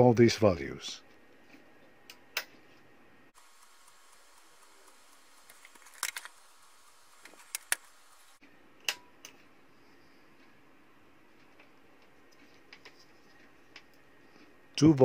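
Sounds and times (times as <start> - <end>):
faint steady hiss: 3.3 - 11.0.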